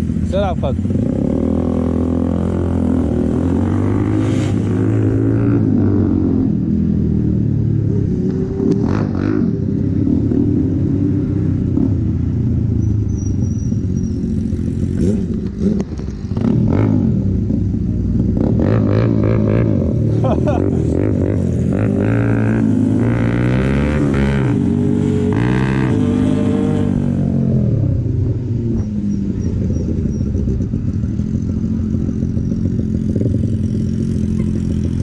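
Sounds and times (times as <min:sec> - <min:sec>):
other motorcycles: 0:00.0 - 0:35.0
motorcycle engine running: 0:04.8 - 0:35.0.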